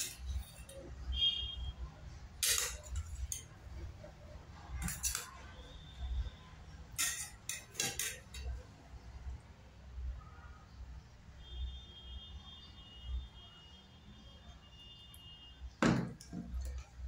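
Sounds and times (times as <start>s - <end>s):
metal spoon clinking on steel bowl: 2.4s - 3.6s, 4.8s - 5.4s, 6.9s - 8.6s.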